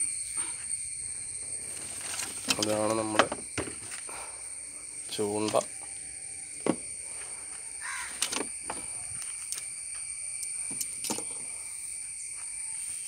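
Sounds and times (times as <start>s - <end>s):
high-pitched insect buzz: 0.0s - 13.0s
birds cawing: 7.7s - 8.4s.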